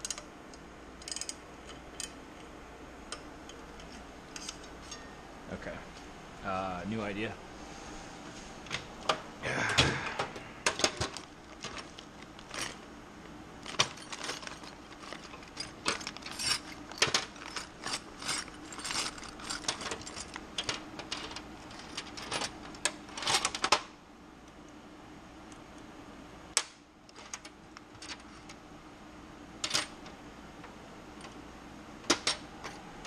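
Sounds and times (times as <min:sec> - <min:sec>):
metal tools clinking and rattling: 0:03.5 - 0:05.2, 0:13.6 - 0:23.6.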